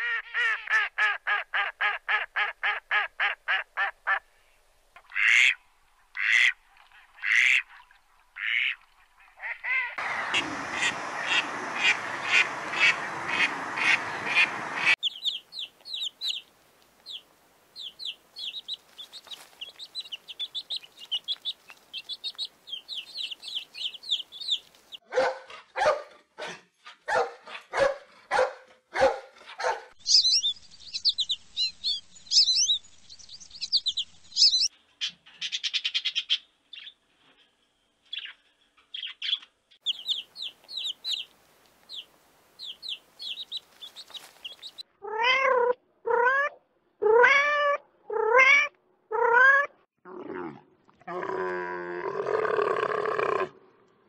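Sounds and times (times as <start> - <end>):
ducks quacking: 5.0 - 5.6, 6.2 - 15.0
goslings peeping: 8.4 - 25.0, 30.0 - 34.7, 39.2 - 44.8
high bird chirping: 15.0 - 17.2, 17.8 - 25.0, 30.0 - 37.0, 38.1 - 41.3, 41.9 - 44.8.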